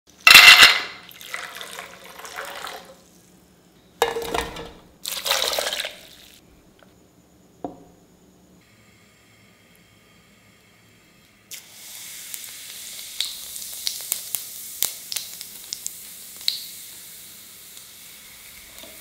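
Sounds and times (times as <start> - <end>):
water pouring into steel bowl: 1.1 - 3.0.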